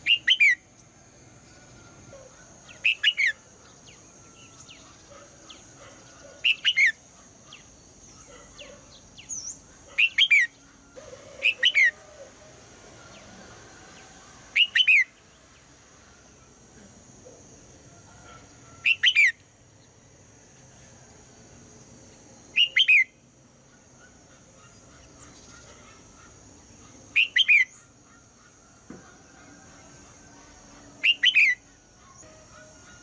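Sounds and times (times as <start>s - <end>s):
bird whistling calls: 0.0s - 0.6s, 2.7s - 3.4s, 6.4s - 7.6s, 11.4s - 12.0s, 14.5s - 15.1s, 18.8s - 19.4s, 22.6s - 23.1s, 27.1s - 27.9s, 31.0s - 31.6s.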